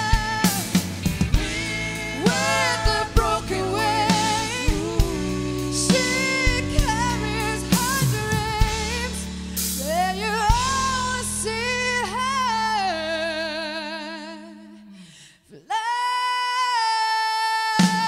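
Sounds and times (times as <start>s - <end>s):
woman singing: 0.0s - 0.8s, 1.4s - 18.0s
band with bass and drums: 0.0s - 13.0s.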